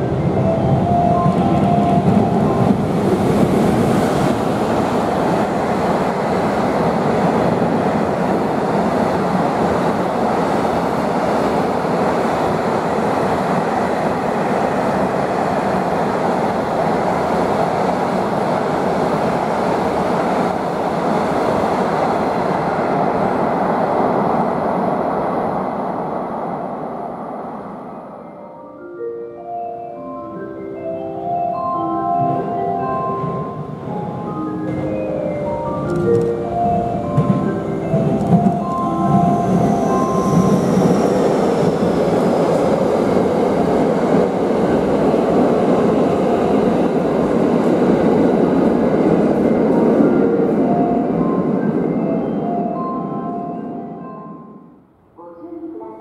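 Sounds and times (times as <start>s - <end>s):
train wheels rumbling on rails: 0.0s - 27.8s, 33.2s - 52.7s.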